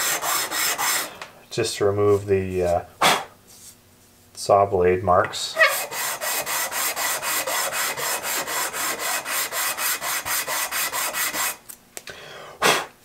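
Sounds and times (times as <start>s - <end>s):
wood block sanding strokes: 0.0s - 1.1s, 5.6s - 11.6s.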